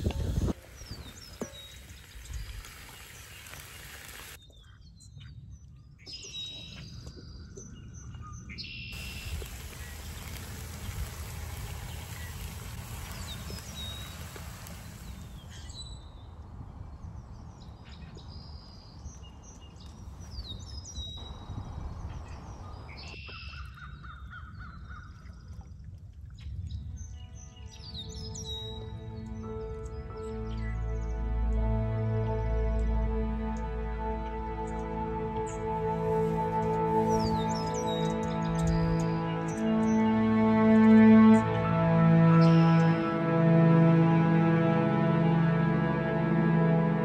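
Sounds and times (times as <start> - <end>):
wild birds chirping: 0.6 - 5.0, 7.7 - 16.3, 34.5 - 41.4
steady low rush: 9.0 - 15.6.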